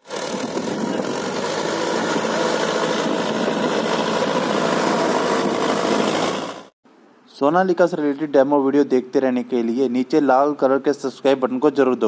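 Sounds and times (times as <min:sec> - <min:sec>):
tractor diesel engine under load: 0:00.0 - 0:06.7.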